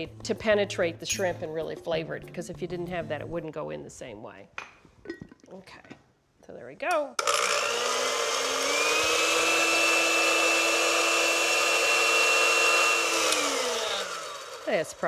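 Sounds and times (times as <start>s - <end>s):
blender motor whining: 7.2s - 15.0s.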